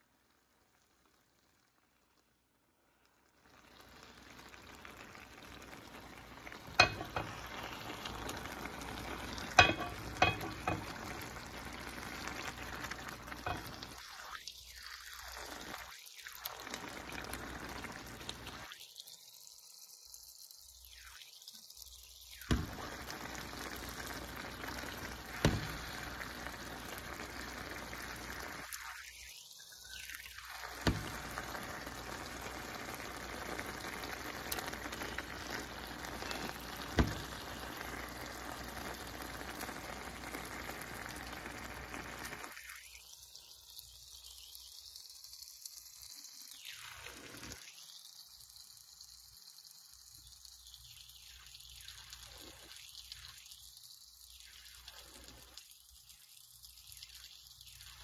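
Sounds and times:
greens simmering in a skillet: 0:00.0 - 0:58.0
spoon knocking against a pan: 0:06.7 - 0:07.6, 0:09.5 - 0:11.0, 0:13.4 - 0:13.8, 0:25.4 - 0:26.1.

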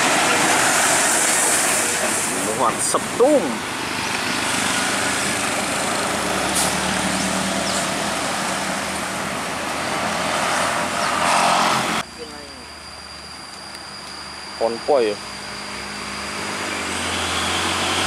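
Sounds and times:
car passing: 0:00.0 - 0:12.0
truck engine pulling uphill: 0:00.0 - 0:14.6, 0:15.2 - 0:18.0
motorcycle passing: 0:03.5 - 0:12.0.

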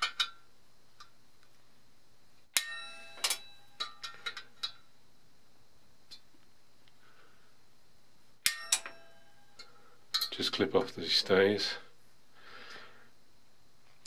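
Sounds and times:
metallic clinks of tools on copper: 0:08.4 - 0:10.4.

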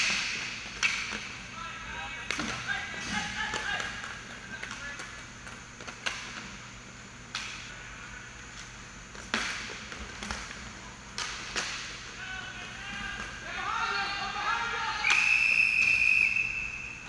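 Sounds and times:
hockey sticks clacking on puck: 0:00.0 - 0:01.3, 0:02.3 - 0:06.4
steady low hum: 0:00.0 - 0:17.0.

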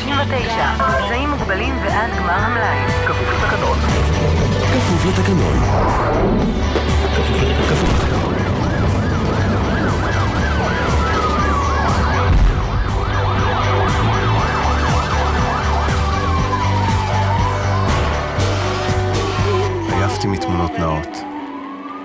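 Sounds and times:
siren yelping: 0:07.4 - 0:22.0
siren gliding down in pitch: 0:07.6 - 0:22.0.

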